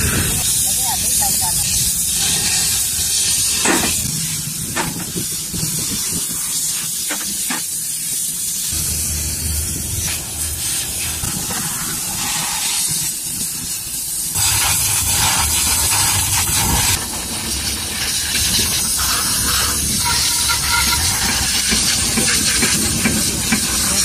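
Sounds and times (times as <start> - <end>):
steady hiss: 0.0 - 24.0
low rumble: 8.7 - 12.4.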